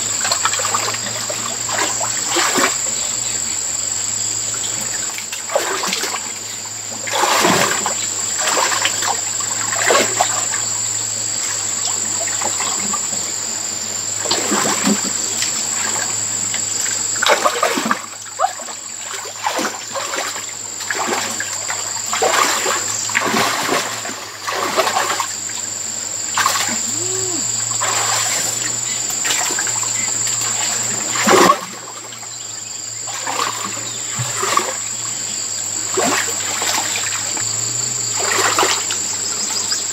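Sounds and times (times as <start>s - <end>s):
muddy water splashing: 0.2s - 3.2s, 4.6s - 10.7s, 11.4s - 32.4s, 33.0s - 39.7s.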